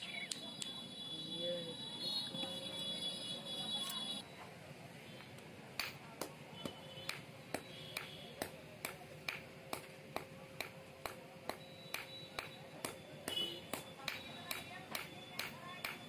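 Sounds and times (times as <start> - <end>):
hammer striking steel on anvil: 5.8 - 16.0.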